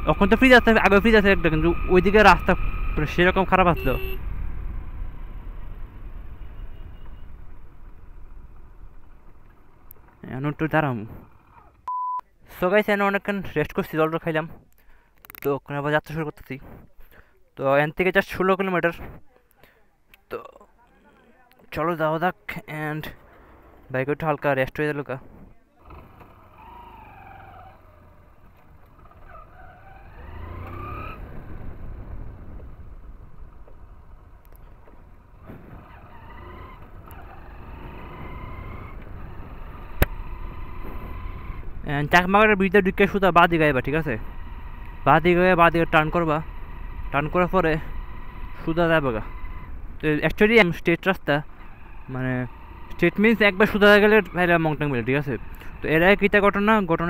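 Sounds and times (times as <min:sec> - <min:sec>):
motorcycle engine: 0:00.0 - 0:10.2, 0:25.8 - 0:50.2, 0:51.3 - 0:57.0.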